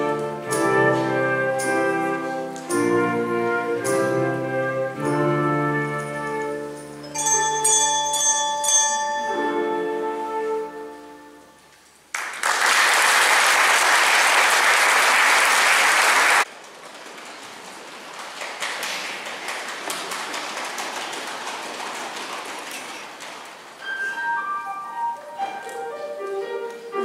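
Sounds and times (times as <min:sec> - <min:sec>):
instrumental notes: 0:00.0 - 0:11.8, 0:23.8 - 0:27.0
crackling patter of clapping: 0:11.8 - 0:23.8
audience applauding: 0:12.1 - 0:23.7.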